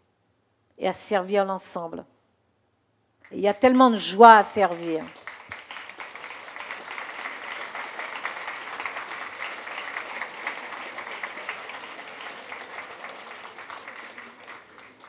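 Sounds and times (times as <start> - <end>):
audience applauding: 4.4 - 15.0.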